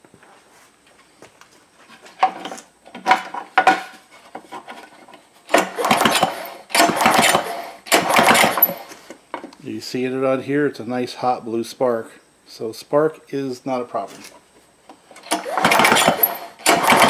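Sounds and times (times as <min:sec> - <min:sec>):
recoil starter rope pulls: 0:05.5 - 0:09.0, 0:15.2 - 0:17.0.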